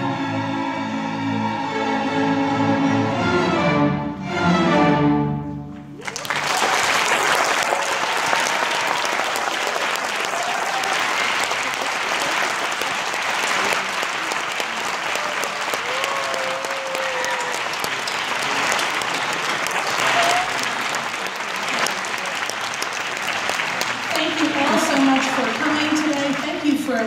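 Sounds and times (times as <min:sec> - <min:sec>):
string orchestra chords: 0:00.0 - 0:06.0
audience applause: 0:06.0 - 0:27.0.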